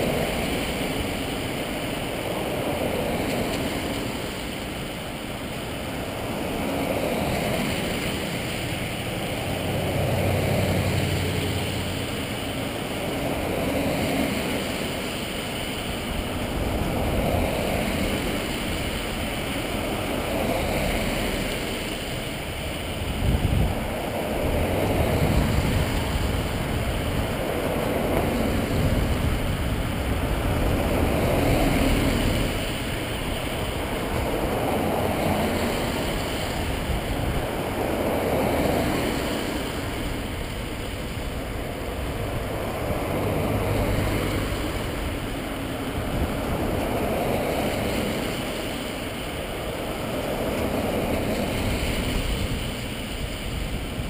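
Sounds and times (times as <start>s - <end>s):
vehicles driving past: 0.0s - 54.0s.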